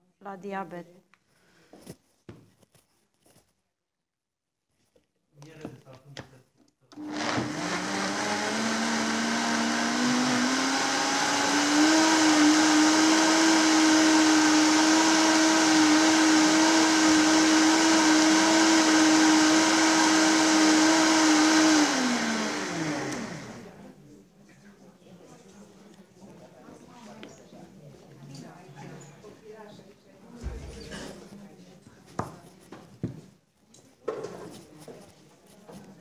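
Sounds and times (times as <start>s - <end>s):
blender motor running: 7.0s - 23.8s.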